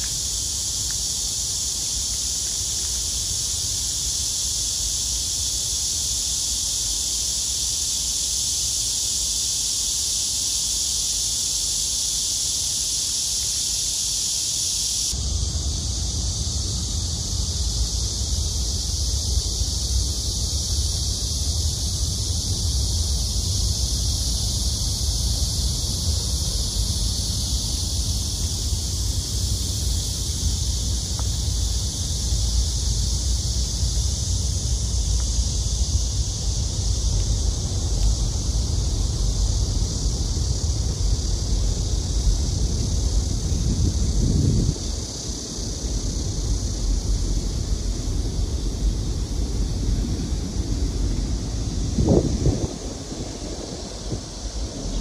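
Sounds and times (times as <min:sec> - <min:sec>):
wind buffeting microphone: 0:19.4 - 0:55.0.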